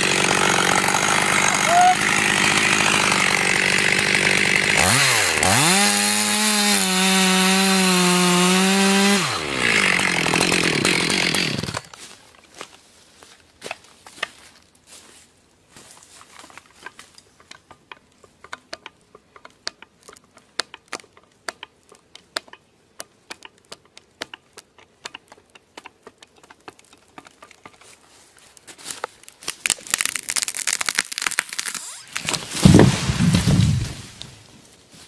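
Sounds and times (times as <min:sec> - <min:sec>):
wood fibres cracking and tearing: 0:16.1 - 0:34.8
wood clicking and snapping: 0:17.4 - 0:28.0
heavy thud of falling trunk: 0:32.5 - 0:34.0.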